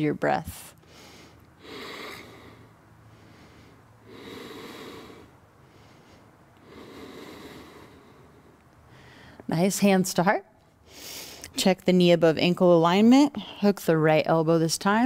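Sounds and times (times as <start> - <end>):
woman breathing deeply: 0.8 - 9.5, 10.8 - 11.5.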